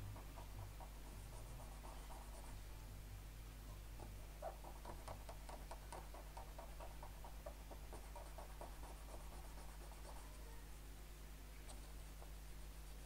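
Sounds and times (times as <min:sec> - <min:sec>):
low steady hum: 0:00.0 - 0:13.0
cotton swab rubbing: 0:04.4 - 0:10.4.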